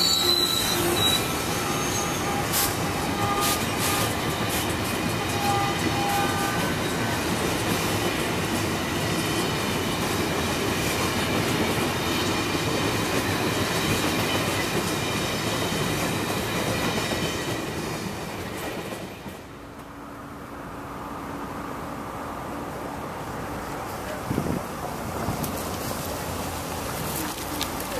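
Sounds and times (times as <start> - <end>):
train wheels clacking over rail joints: 0.0 - 19.9.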